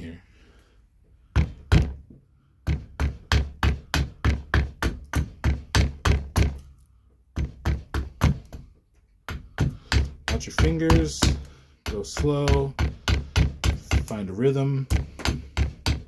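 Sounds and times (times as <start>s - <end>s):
axe chopping wood: 9.3s - 14.2s.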